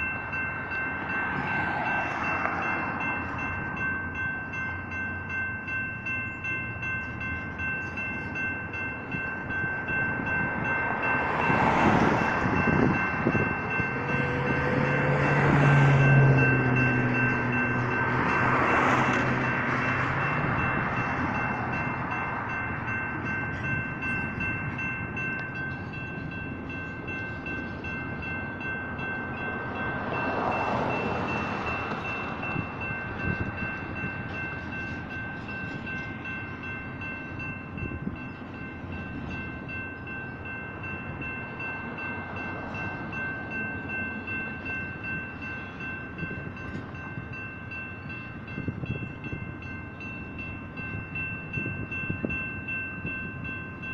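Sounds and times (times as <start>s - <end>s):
crossing bells ringing: 0.0s - 53.9s
freight train rumbling: 0.0s - 53.9s.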